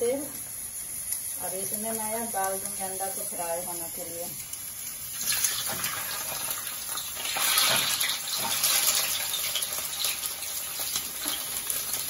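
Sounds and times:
eggs frying in hot oil: 0:00.0 - 0:12.0
small crackling pops: 0:00.4 - 0:01.4, 0:02.3 - 0:02.8, 0:04.3 - 0:12.0.

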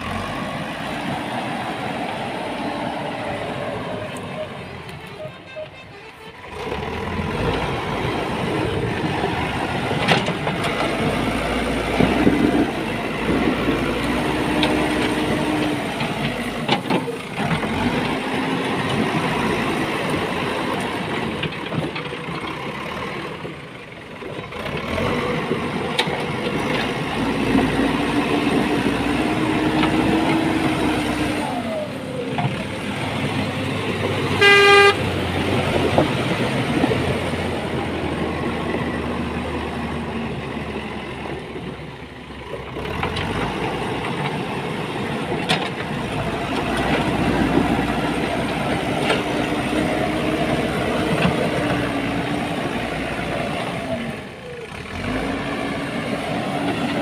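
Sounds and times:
diesel engine under load: 0:00.0 - 0:57.0
horn beep: 0:05.0 - 0:06.4, 0:34.4 - 0:35.1.

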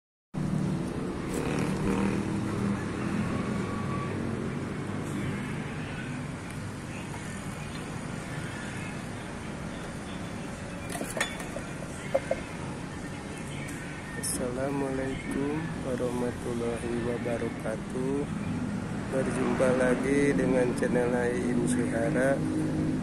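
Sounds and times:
outdoor traffic noise: 0:00.4 - 0:23.0.

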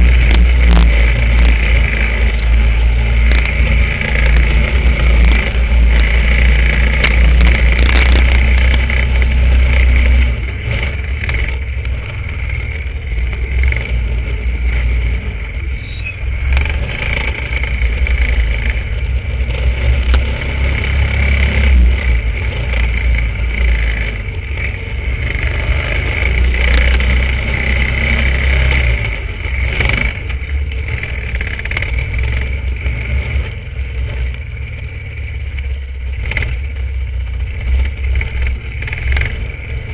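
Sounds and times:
snowmobile engine revving: 0:00.0 - 0:39.9.

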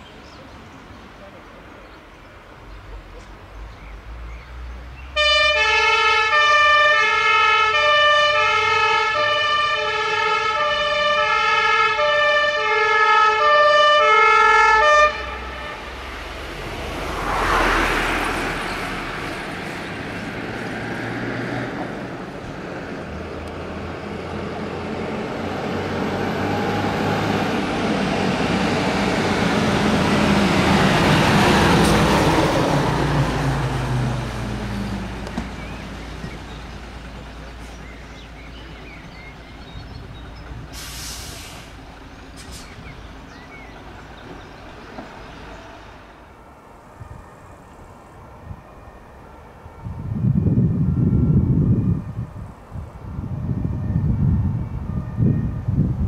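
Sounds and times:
fire engine driving past: 0:02.4 - 0:56.0
brief hiss: 0:40.7 - 0:42.8.

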